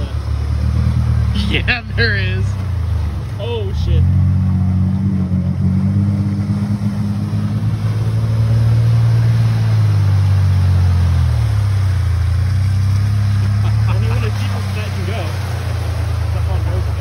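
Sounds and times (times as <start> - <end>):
truck engine under load: 0.0 - 17.0
water sloshing: 0.0 - 17.0.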